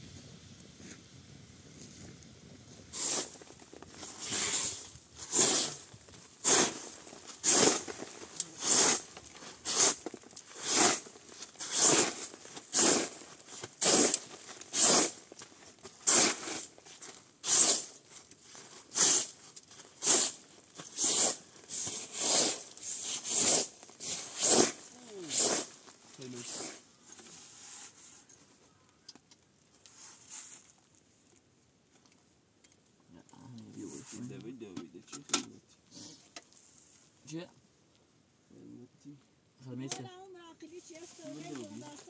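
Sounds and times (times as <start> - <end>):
broom sweeping canvas: 2.9 - 16.8, 17.4 - 28.3, 29.9 - 30.7, 40.7 - 42.0.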